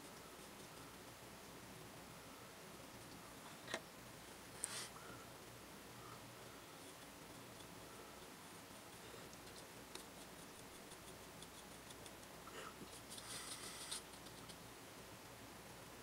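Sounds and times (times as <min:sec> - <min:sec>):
paintbrush scratching on plastic: 0:09.4 - 0:14.6.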